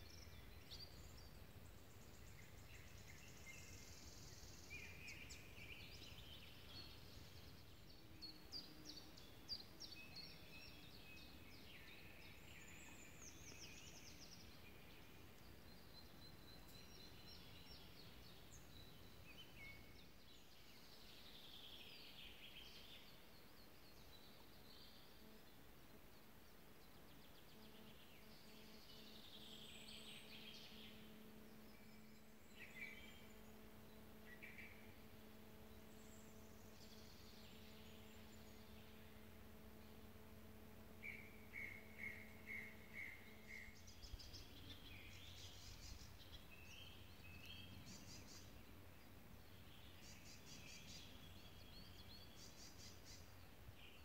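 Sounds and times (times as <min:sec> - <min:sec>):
faint steady hum: 0:00.0 - 0:54.0
songbirds singing faintly: 0:00.0 - 0:54.0
low steady rumble: 0:27.2 - 0:54.0.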